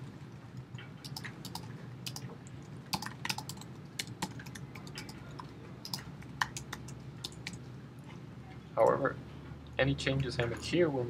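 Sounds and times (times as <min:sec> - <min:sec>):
computer keyboard typing: 0:01.0 - 0:07.6.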